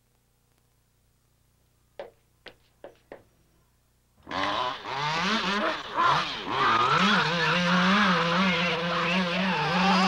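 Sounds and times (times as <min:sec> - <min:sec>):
chainsaw engine revving: 0:04.2 - 0:10.0.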